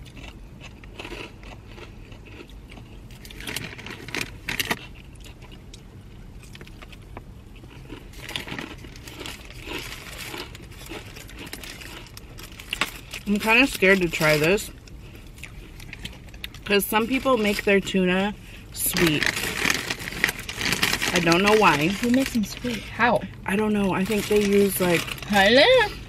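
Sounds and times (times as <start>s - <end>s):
crunching and chewing food: 0.0s - 26.0s
paper and chip bag rustling: 18.8s - 23.0s, 23.9s - 26.0s.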